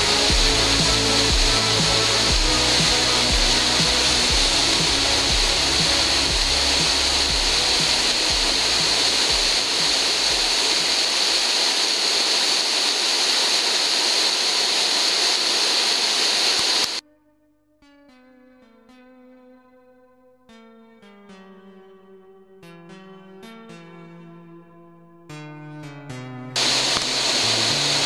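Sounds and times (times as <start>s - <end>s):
waterfall rushing: 0.0s - 17.0s, 26.6s - 28.0s.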